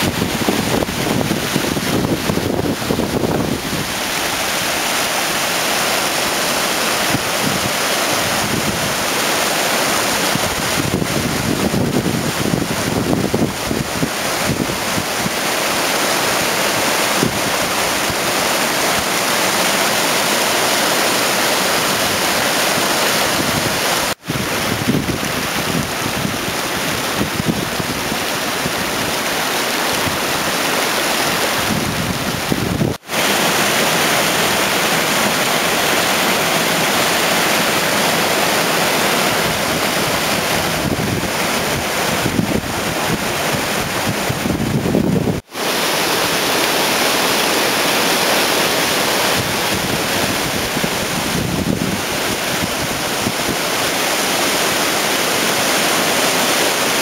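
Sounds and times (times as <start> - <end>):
wind buffeting microphone: 0.0 - 4.8, 10.3 - 15.4, 23.3 - 29.0, 31.6 - 33.0, 39.2 - 46.5, 49.2 - 53.8
river rushing over rocks: 0.0 - 57.0.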